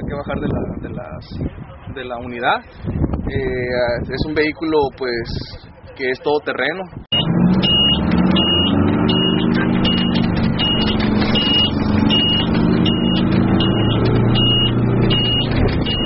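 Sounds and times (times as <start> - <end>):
high electronic warning beeps: 7.1 - 16.0
truck engine running: 7.1 - 16.0.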